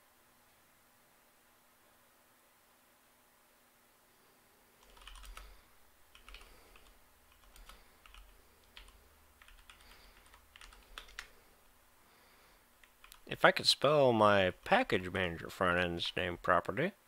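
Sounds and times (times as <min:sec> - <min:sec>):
faint keyboard typing: 0:04.8 - 0:11.6, 0:12.7 - 0:13.3.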